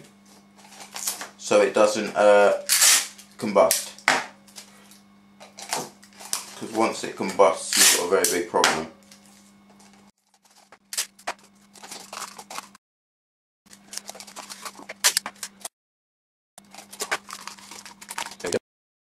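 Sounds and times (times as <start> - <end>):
low steady hum: 0.0 - 12.8
clicks taps and rustles: 16.6 - 18.6.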